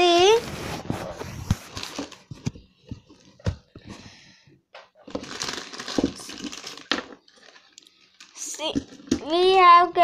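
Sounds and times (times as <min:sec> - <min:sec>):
plastic bag crinkling: 0:01.6 - 0:02.3, 0:05.0 - 0:09.5.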